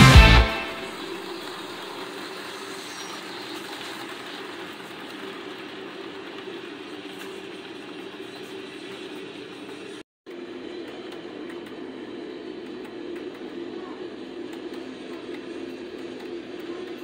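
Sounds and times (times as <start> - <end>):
rock music: 0.0 - 1.0
wheels rolling on rails: 0.9 - 10.0.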